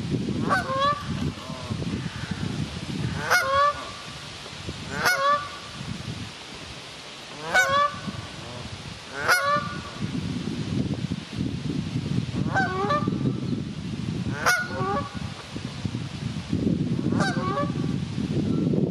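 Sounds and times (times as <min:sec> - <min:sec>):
goose honking: 0:00.5 - 0:01.0, 0:03.2 - 0:04.0, 0:04.9 - 0:05.6, 0:07.4 - 0:08.0, 0:09.1 - 0:09.8, 0:14.4 - 0:15.1.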